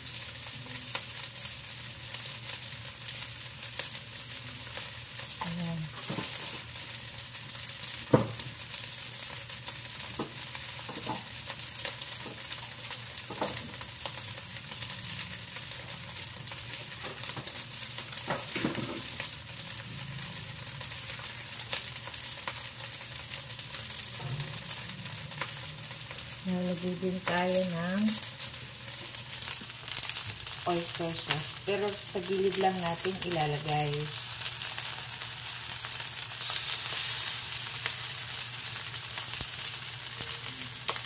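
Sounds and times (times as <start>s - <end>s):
rice sizzling in a wok: 0.0s - 41.0s.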